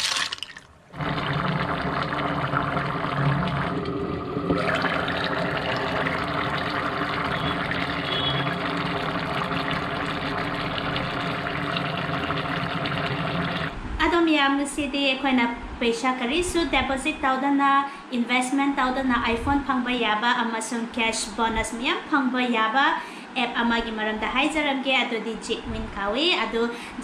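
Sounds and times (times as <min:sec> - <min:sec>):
steady hum: 0:00.8 - 0:14.3
curry bubbling in a pot: 0:00.9 - 0:13.8.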